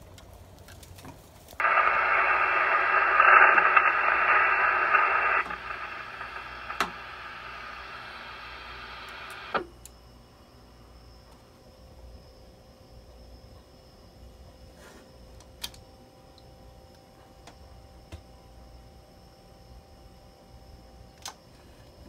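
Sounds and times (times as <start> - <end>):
radio receiver static hiss: 1.6 - 9.9.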